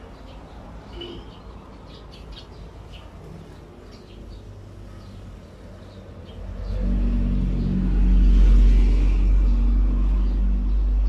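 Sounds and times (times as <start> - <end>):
engine rumble: 4.5 - 11.0.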